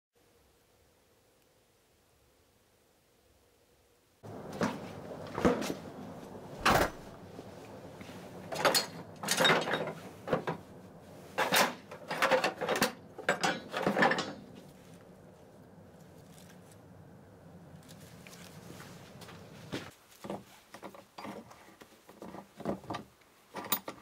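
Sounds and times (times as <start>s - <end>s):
tools clattering in plastic bucket: 4.3s - 6.0s, 8.1s - 10.6s, 11.3s - 14.9s.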